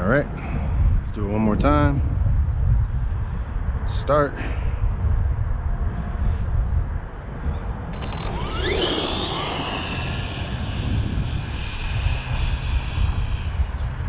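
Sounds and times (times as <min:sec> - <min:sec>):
wind buffeting microphone: 0:00.0 - 0:14.0
electric motor whining: 0:08.0 - 0:13.2.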